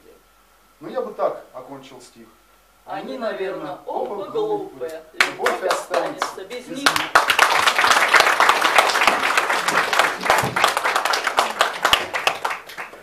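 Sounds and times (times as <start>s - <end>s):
audience applauding: 5.2s - 13.0s.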